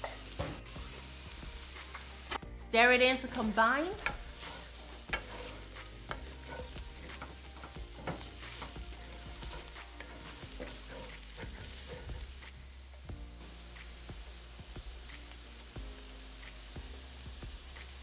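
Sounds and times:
vegetables sizzling in a skillet: 0.0s - 18.0s
wooden spatula scraping a skillet: 3.2s - 12.4s.

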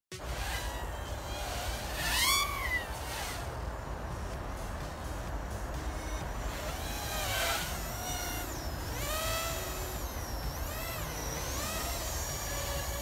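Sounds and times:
quadcopter motors whining: 0.1s - 13.0s.

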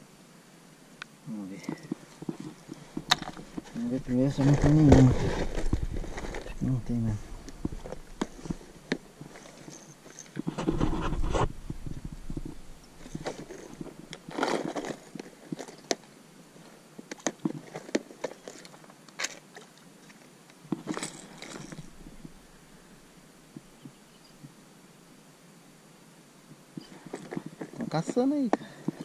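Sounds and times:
rustling handling: 1.6s - 22.4s, 26.8s - 29.0s.

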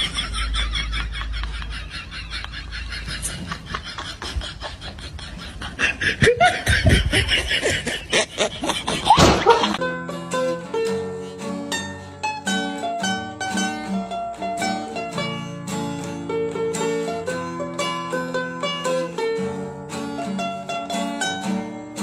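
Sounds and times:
clattering noise: 8.7s - 9.8s
plucked string instrumental tune: 9.0s - 22.0s.

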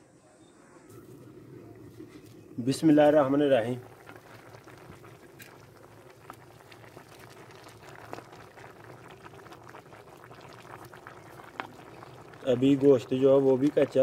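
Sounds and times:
water bubbling in a pot: 1.0s - 14.0s.

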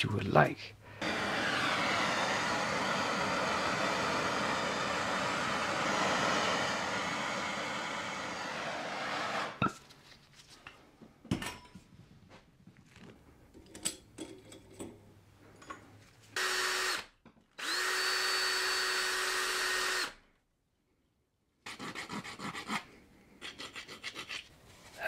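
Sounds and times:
drill with abrasive wheel: 1.0s - 9.6s, 16.4s - 20.2s
soldering torch hissing: 1.0s - 9.6s.

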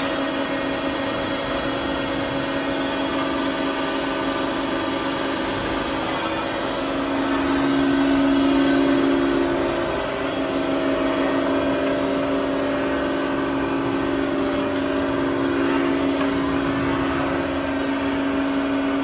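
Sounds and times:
grinder humming: 0.0s - 19.0s.

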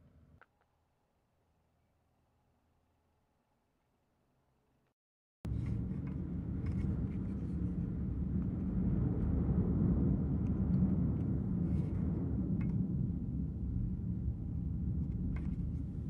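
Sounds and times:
ferry engines rumbling: 5.5s - 10.5s.

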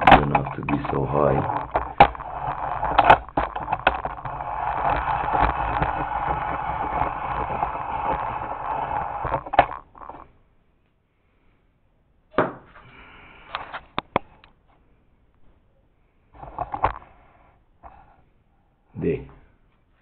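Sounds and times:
rustling and scraping: 0.0s - 10.4s, 12.7s - 14.8s, 16.3s - 18.3s.

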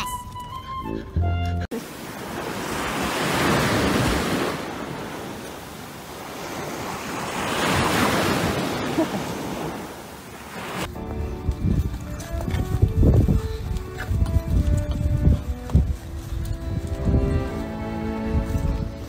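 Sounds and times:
music: 0.0s - 1.7s, 10.9s - 19.0s
surf washing onto beach: 1.8s - 10.9s
wind buffeting microphone: 10.8s - 19.0s.

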